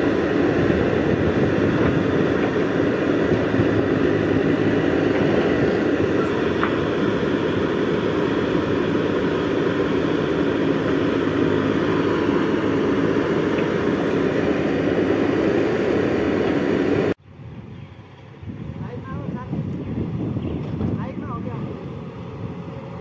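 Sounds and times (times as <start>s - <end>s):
backhoe digging soil: 0.0s - 17.2s
diesel engine running under load: 0.0s - 17.2s, 17.9s - 23.0s
distant machine: 0.0s - 17.2s.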